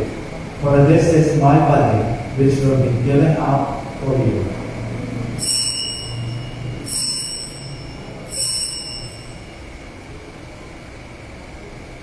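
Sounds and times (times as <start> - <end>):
altar bells ringing: 5.3 - 10.0.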